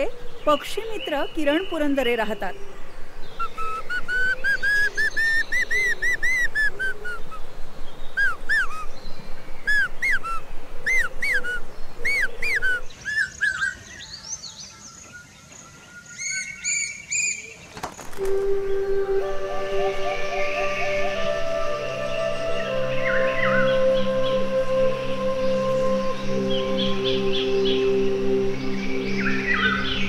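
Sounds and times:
cuckoo whistling: 3.4s - 7.4s, 8.2s - 8.9s, 9.6s - 13.2s, 18.1s - 30.0s.

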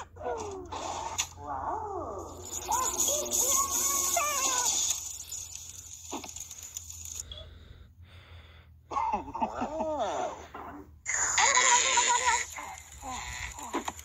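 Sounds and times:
cartoon character voice sounds: 1.4s - 5.0s, 11.1s - 13.8s.

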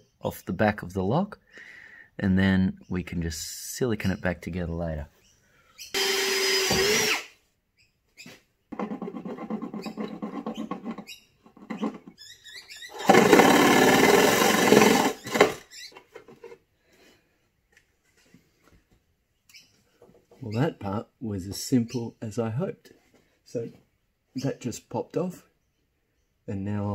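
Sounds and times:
power tool cutting plastic: 5.9s - 7.4s, 12.9s - 15.8s.

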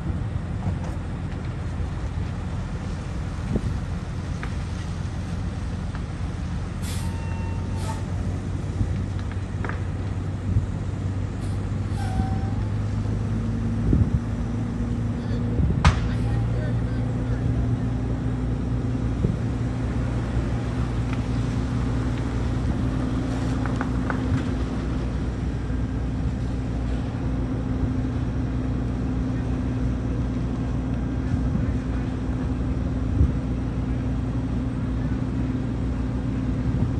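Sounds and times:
vehicle engine idling: 0.0s - 36.9s.

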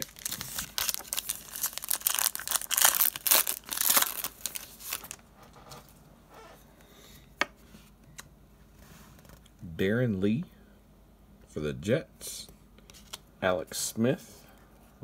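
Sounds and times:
foil wrapper tearing and crinkling: 0.0s - 5.2s.

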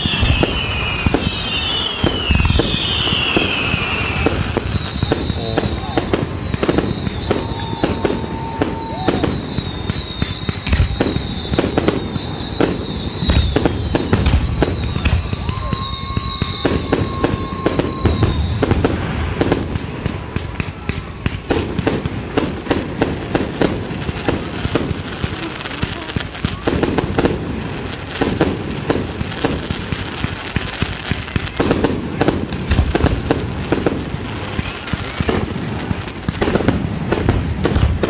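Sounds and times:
firework whistles falling in pitch: 0.0s - 19.5s
fireworks bangs and crackling: 0.0s - 38.0s.

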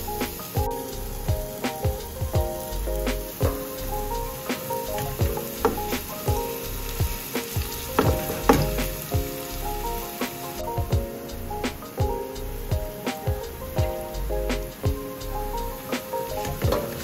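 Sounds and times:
onions sizzling in hot oil: 0.0s - 17.0s.

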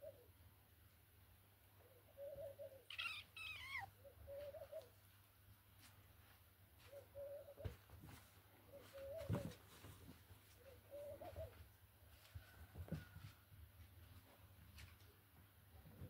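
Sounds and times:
dove cooing: 0.0s - 0.3s, 1.8s - 5.0s, 6.8s - 7.8s, 8.7s - 9.6s, 10.5s - 11.6s
kitten squealing: 2.9s - 3.9s.

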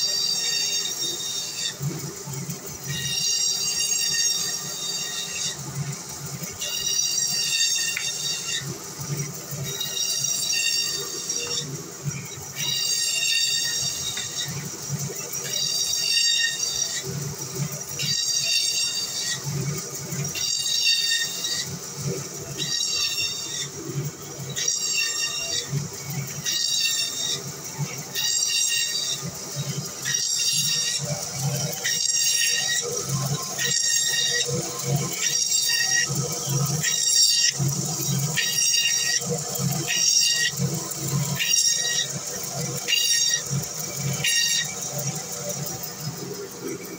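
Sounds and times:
band saw whine cutting fish: 0.0s - 46.9s.

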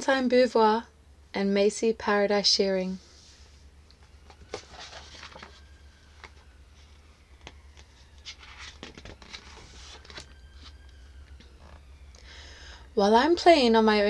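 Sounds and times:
low steady hum: 0.0s - 14.0s
book pages turning: 3.3s - 11.8s.

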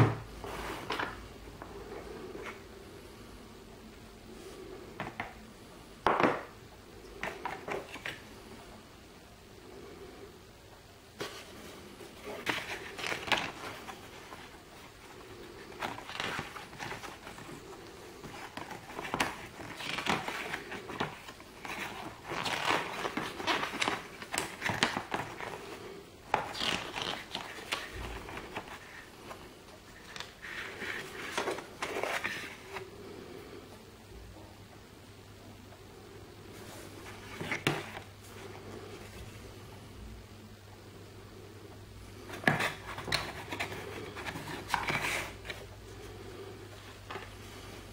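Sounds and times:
paper rustling and crinkling: 11.2s - 32.9s, 36.5s - 39.3s, 42.2s - 45.7s.

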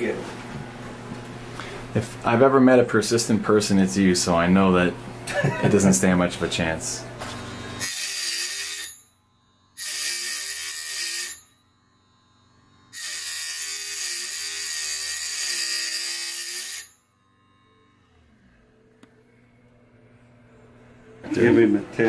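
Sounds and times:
grinder grinding metal ring: 7.4s - 18.8s.

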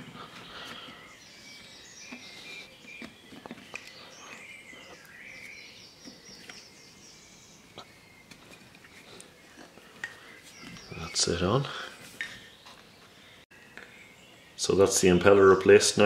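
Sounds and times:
faint high chirping: 0.0s - 15.6s
rubber grommet rubbing and clicking: 2.0s - 4.4s.

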